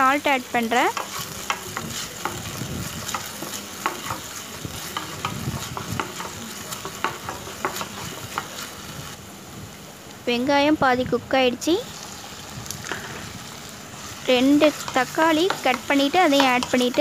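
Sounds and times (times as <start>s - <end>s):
onions sizzling in oil: 0.0s - 17.0s
spatula scraping a pan: 0.8s - 8.9s, 12.9s - 17.0s.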